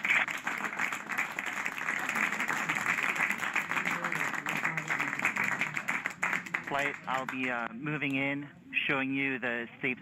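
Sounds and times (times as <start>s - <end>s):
group of people clapping: 0.0s - 7.7s.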